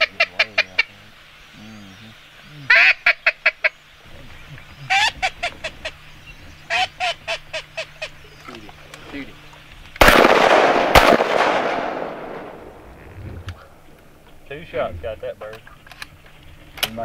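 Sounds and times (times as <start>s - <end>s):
duck call quacking: 2.7s - 3.8s, 4.8s - 6.0s, 6.7s - 8.2s.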